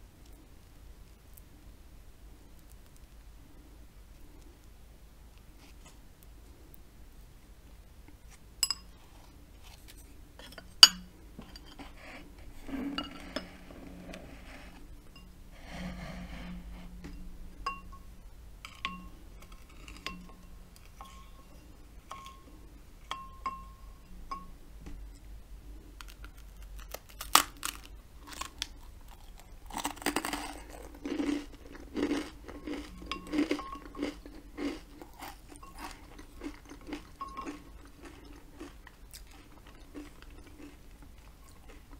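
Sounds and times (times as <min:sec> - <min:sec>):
spreader scraping toast: 0:15.5 - 0:17.2
crunchy chewing of toast: 0:18.6 - 0:21.4, 0:26.0 - 0:41.9.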